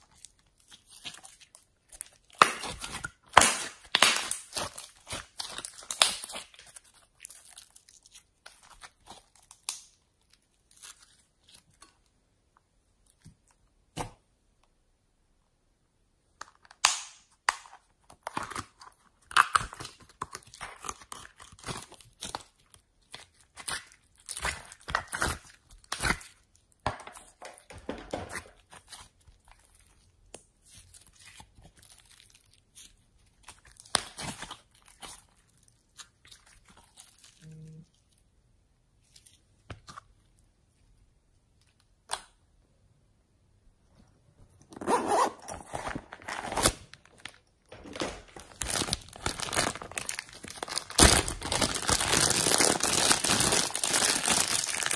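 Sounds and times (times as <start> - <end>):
slime crackling and popping: 0.0 - 11.8, 18.2 - 27.7, 48.4 - 54.9.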